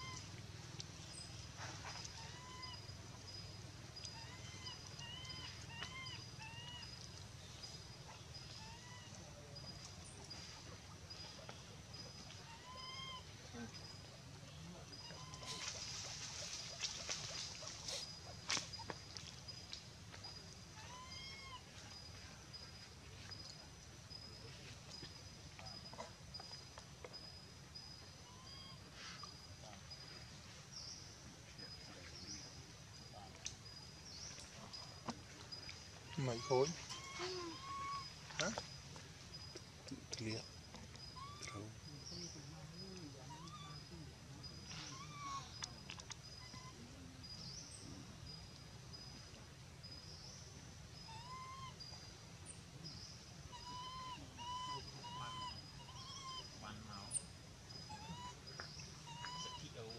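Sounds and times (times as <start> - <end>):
monkeys giving coo calls: 0.0 - 0.4, 1.6 - 7.2, 8.0 - 19.1, 20.8 - 22.2, 34.4 - 48.2, 51.0 - 52.0, 53.4 - 59.9
low background hiss: 0.0 - 59.9.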